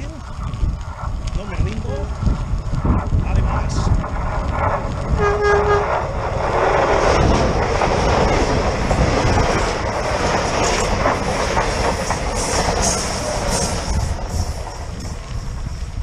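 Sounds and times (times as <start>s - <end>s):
train horn blast: 5.1s - 6.1s
train wheels clattering on track: 5.2s - 15.8s.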